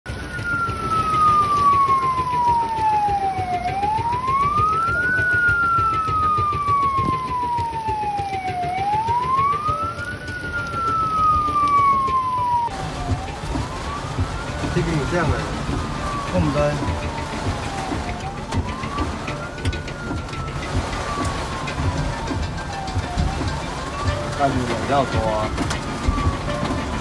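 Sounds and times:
heavy rain hiss: 0.1s - 19.4s
fire engine siren wailing: 0.1s - 27.0s.

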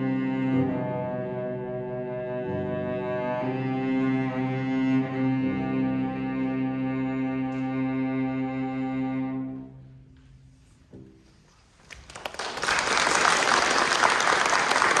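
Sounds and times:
audience applause: 11.9s - 15.0s.

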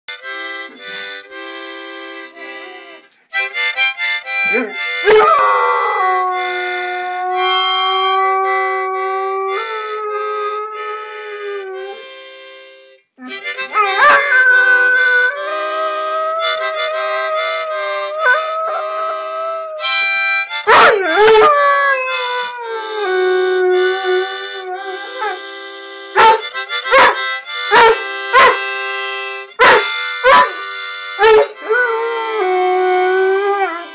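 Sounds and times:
harmonica chords: 0.1s - 33.9s
dog howling: 4.5s - 12.0s, 13.2s - 19.9s, 20.7s - 25.4s, 26.2s - 28.6s.

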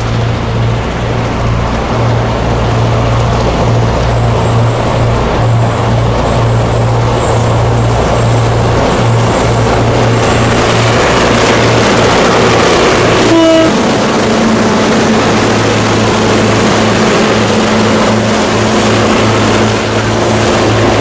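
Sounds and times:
diesel locomotive engines droning: 0.0s - 21.0s
train horn toot: 13.2s - 13.9s.

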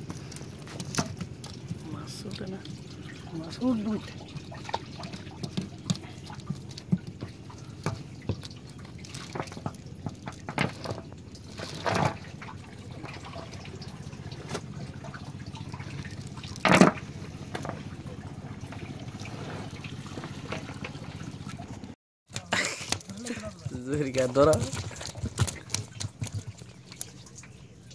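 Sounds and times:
water dripping from wet net: 0.0s - 21.6s, 22.5s - 27.9s
water bursts: 1.2s - 21.8s.

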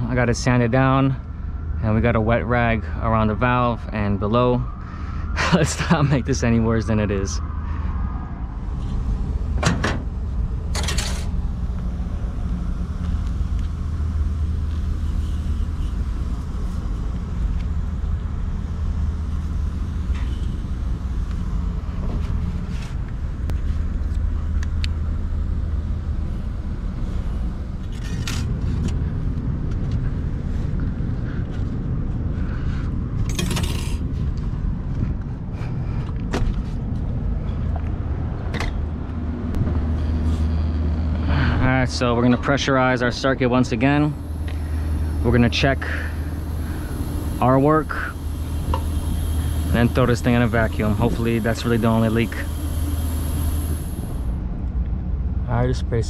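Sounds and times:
low mechanical hum: 0.0s - 56.0s
tools clicking and rattling: 33.2s - 34.0s.

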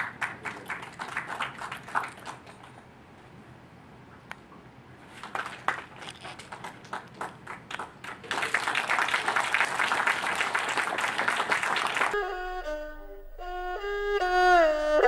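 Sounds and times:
audience applauding: 0.0s - 2.8s, 5.2s - 12.2s
background music: 12.2s - 15.0s.

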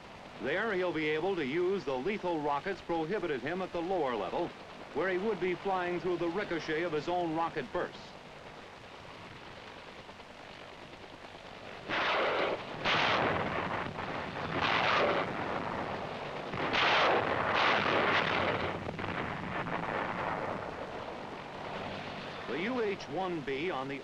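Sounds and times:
low rumbling: 0.0s - 23.6s
explosion blasts: 11.8s - 22.5s.

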